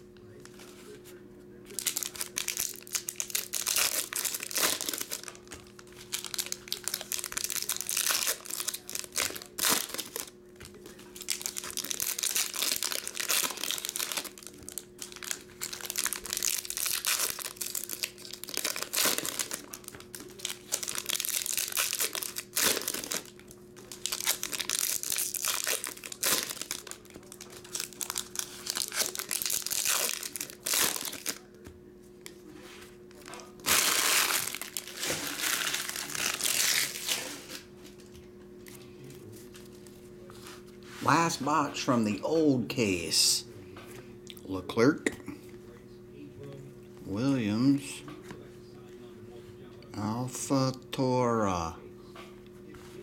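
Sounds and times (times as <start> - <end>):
foil wrappers crinkling and tearing: 1.7 - 31.6, 33.1 - 38.0.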